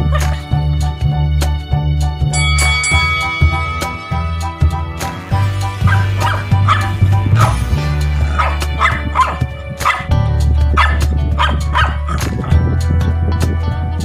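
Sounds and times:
puppy barking in high yaps: 0.0s - 0.5s, 5.8s - 7.6s, 8.3s - 10.1s, 10.8s - 12.4s
background music: 0.0s - 14.0s.

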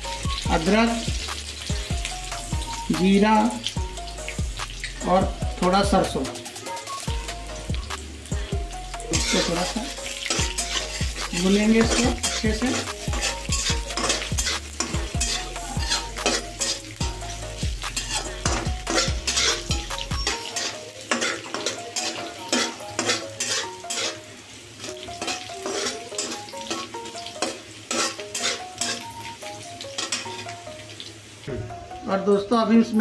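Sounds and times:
spices sizzling in oil: 0.0s - 33.0s
metal spatula scraping pan: 9.0s - 29.3s, 29.9s - 30.5s.

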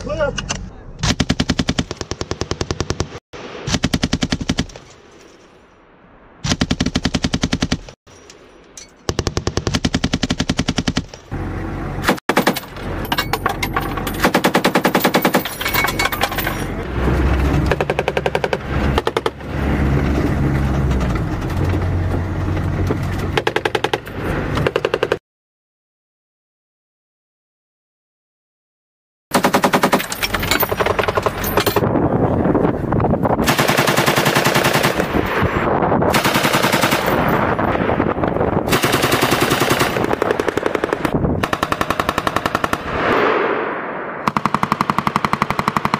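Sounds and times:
machine-gun fire bursts: 1.0s - 4.7s, 6.4s - 8.0s, 9.2s - 11.1s, 29.3s - 30.1s, 33.4s - 35.0s, 36.1s - 37.3s, 38.7s - 42.9s, 44.2s - 45.9s
vehicle engine drone: 11.2s - 14.4s, 15.7s - 25.1s.

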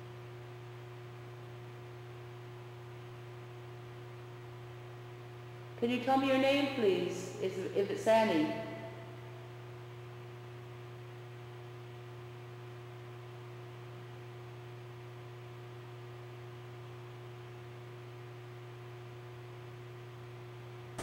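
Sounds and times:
low hum: 6.1s - 10.5s.

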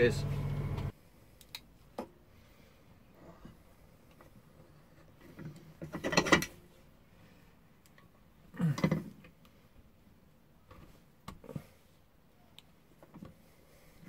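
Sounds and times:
metal tube sliding and rattling: 3.2s - 6.8s.

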